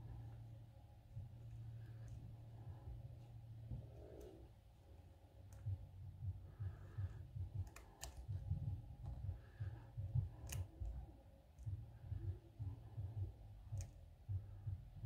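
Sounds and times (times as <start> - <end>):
soft rapid low knocking: 5.4 - 15.0.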